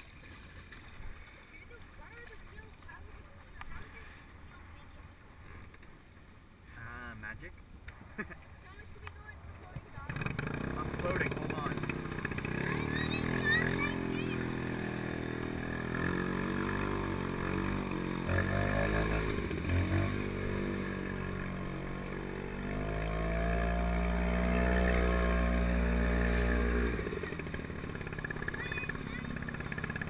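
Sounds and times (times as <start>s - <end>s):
two-stroke engine running: 9.9s - 30.0s.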